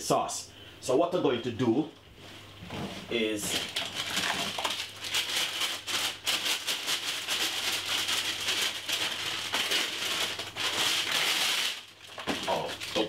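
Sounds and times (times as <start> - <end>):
baking paper crinkling: 3.0 - 13.0.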